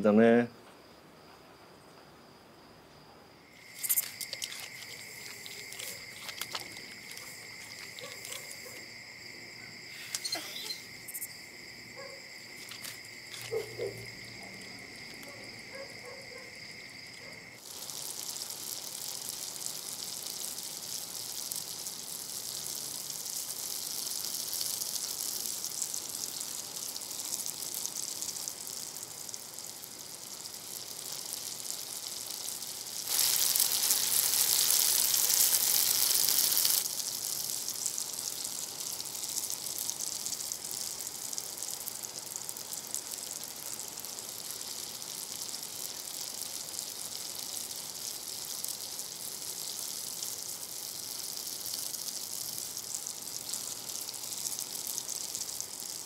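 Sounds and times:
crickets chirring: 0:00.0 - 0:56.0
food sizzling in frying pan: 0:03.4 - 0:56.0
small clicks and rustles: 0:03.8 - 0:08.8.

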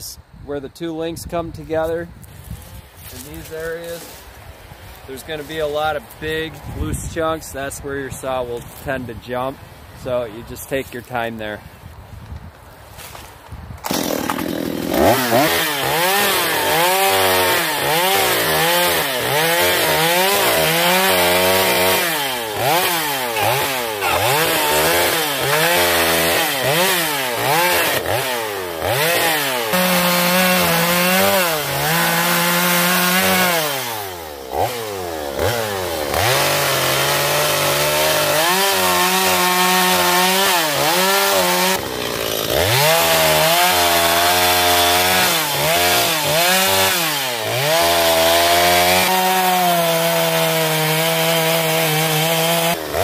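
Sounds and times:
chainsaw cutting log: 0:13.8 - 0:53.0.

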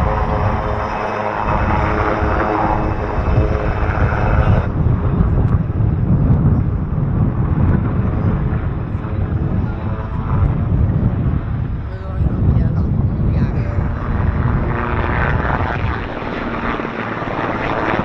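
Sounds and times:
helicopter rotor rumble: 0:00.0 - 0:18.0
helicopter turbine engine whine: 0:00.0 - 0:18.0.

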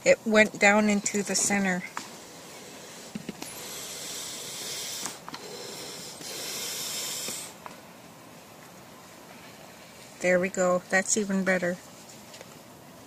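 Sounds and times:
air hissing out of balloon: 0:02.1 - 0:07.6.

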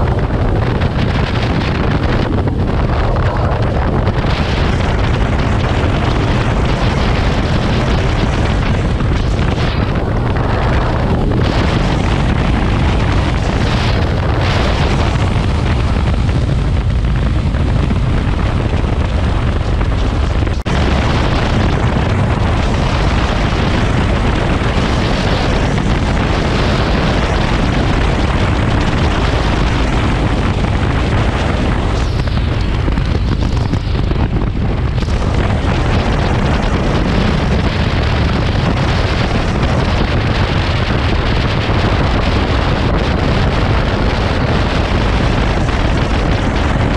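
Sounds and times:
motorcycle engine: 0:00.0 - 0:46.9
road noise: 0:00.0 - 0:46.9
wind buffeting microphone: 0:00.0 - 0:46.9.

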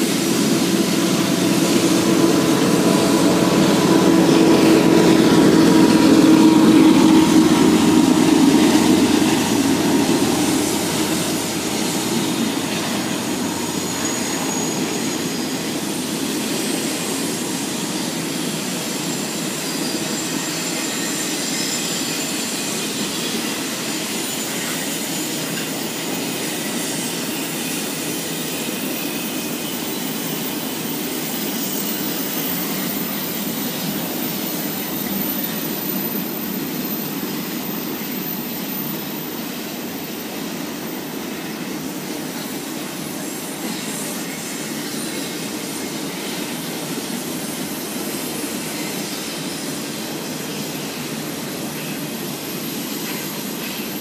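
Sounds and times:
faint high squeals: 0:00.0 - 0:25.6
diesel locomotive: 0:00.0 - 0:54.0
train wheels on rails: 0:00.0 - 0:54.0.

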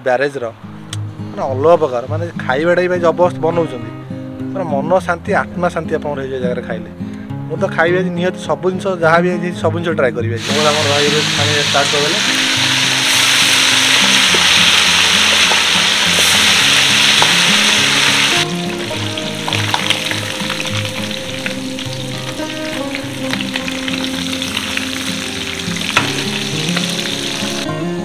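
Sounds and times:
food sizzling in hot oil: 0:10.4 - 0:27.7.

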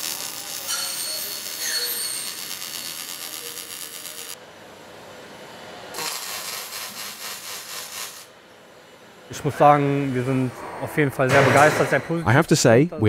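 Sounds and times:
welding arc crackling hiss: 0:00.0 - 0:04.4, 0:05.9 - 0:08.4.

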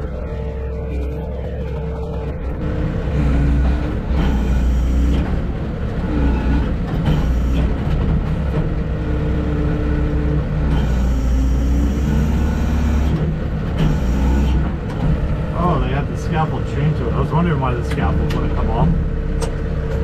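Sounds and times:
diesel engine running: 0:00.0 - 0:20.0
hydraulic whine: 0:00.0 - 0:20.0.

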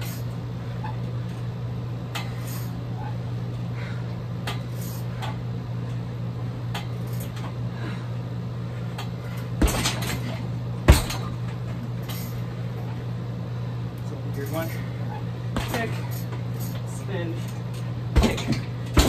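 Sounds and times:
steady low hum: 0:00.0 - 0:19.0
kicks on a heavy bag: 0:09.6 - 0:11.8, 0:15.5 - 0:16.0, 0:18.1 - 0:19.0.

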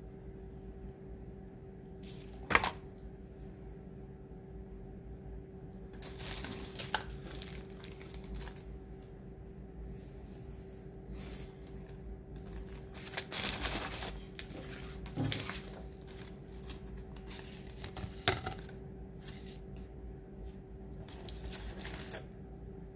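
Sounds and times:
tissue paper and plastic crinkling: 0:06.0 - 0:08.8, 0:11.2 - 0:18.2, 0:21.1 - 0:22.3.

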